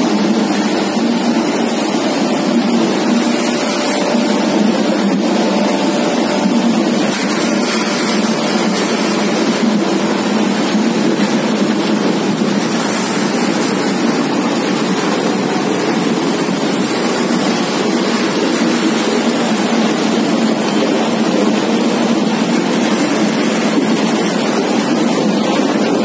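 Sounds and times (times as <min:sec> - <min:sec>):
loud machinery noise: 0:00.0 - 0:26.0.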